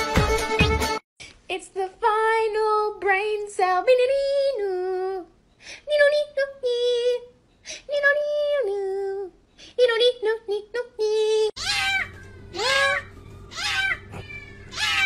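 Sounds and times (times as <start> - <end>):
high-pitched voice singing: 7.9 - 13.1.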